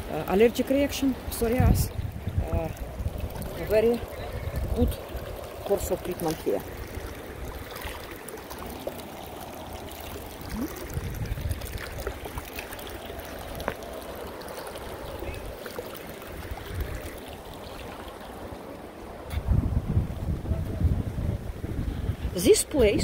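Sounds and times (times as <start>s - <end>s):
wind buffeting microphone: 0.0s - 8.7s, 10.2s - 14.0s, 14.8s - 23.0s.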